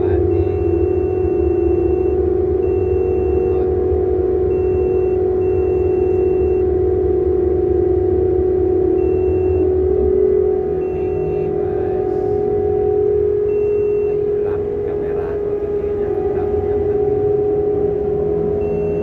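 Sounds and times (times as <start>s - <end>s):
cargo machinery drone: 0.0s - 19.0s
thin high tone: 8.8s - 19.0s.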